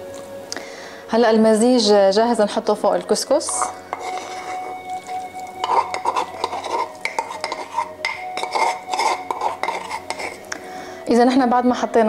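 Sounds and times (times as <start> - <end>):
metal spoon scraping wooden mortar: 3.4 - 10.5.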